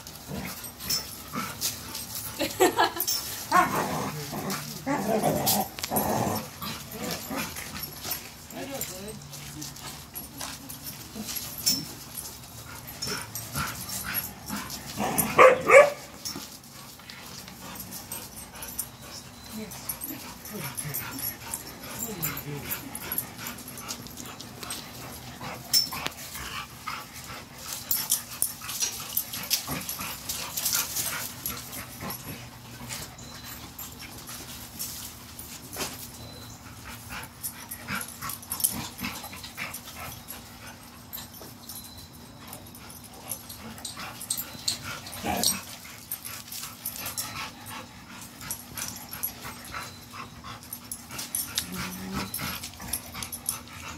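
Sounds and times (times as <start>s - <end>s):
dog heavy breathing: 6.4s - 15.3s, 16.2s - 34.3s, 36.3s - 53.9s
low dog vocal sounds: 47.4s - 53.9s.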